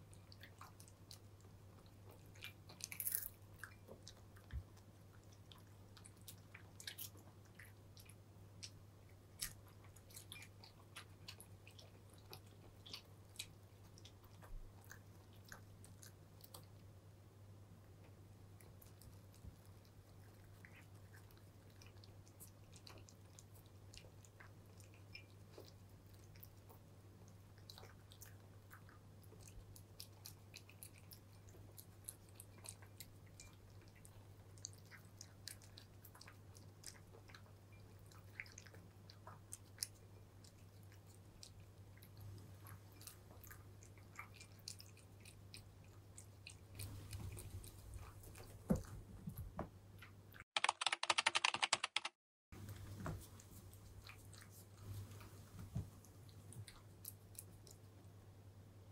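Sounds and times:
cats crunching dry kibble: 0.2 - 8.2.

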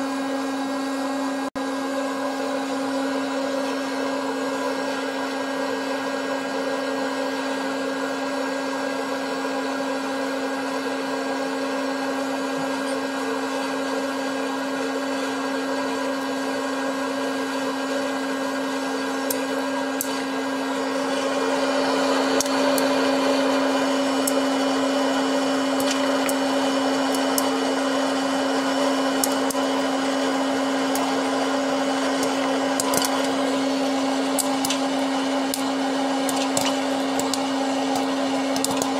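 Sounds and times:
fan motor hum: 12.0 - 38.9
popcorn kernels popping: 22.2 - 27.7, 29.1 - 29.8, 30.8 - 31.4, 32.0 - 33.4, 34.2 - 38.9.

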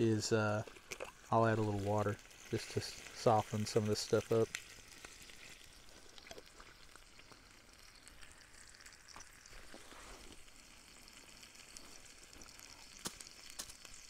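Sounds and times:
meat and apples sizzling: 0.0 - 14.0.

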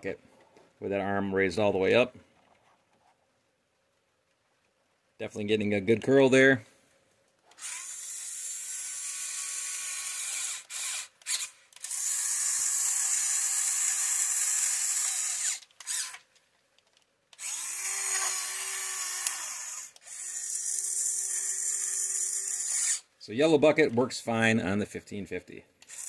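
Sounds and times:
electric motors whirring: 7.5 - 16.2, 17.3 - 23.0.

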